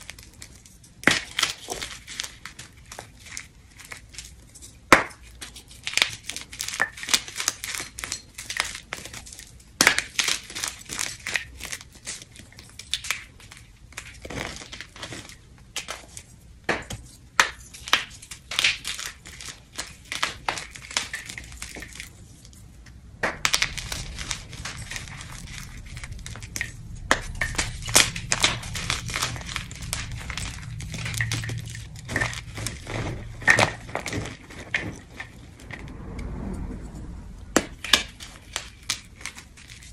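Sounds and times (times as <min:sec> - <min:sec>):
chalk crunching and crackling: 0:17.0 - 0:35.6
low hum: 0:21.4 - 0:39.9.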